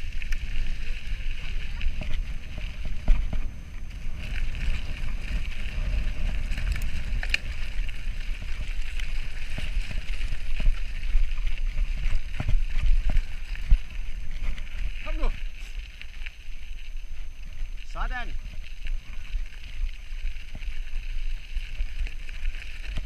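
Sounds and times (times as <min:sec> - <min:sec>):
wind buffeting microphone: 0:00.0 - 0:15.6
bike rolling on gravel: 0:00.0 - 0:23.0
bike knocks and rattles: 0:00.4 - 0:15.2.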